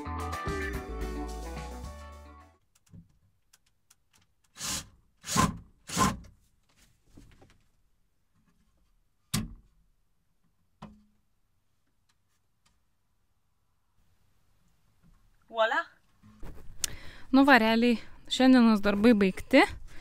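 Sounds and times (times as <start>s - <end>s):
cordless drill driving screw: 4.5s - 6.2s.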